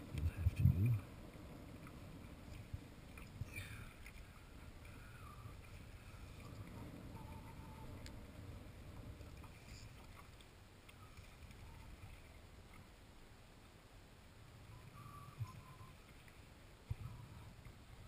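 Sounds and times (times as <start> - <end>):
wind rumble on microphone: 0.0 - 10.3
water lapping against boat hull: 0.0 - 13.1
faint high whistles: 14.6 - 16.1.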